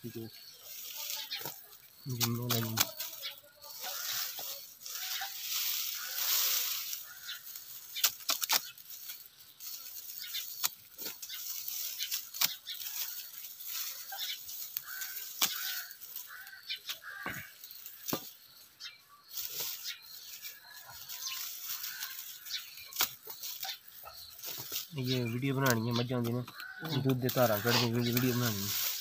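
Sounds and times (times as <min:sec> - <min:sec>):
dry stalks and straw rustling: 0:00.0 - 0:29.0
stalks snapping: 0:01.4 - 0:03.2, 0:05.6 - 0:13.9, 0:14.5 - 0:17.2, 0:22.8 - 0:23.6.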